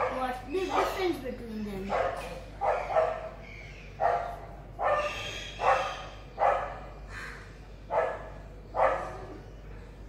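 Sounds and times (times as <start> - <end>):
dog barking: 0.0 - 1.1, 1.8 - 3.4, 4.0 - 6.9, 7.9 - 9.4.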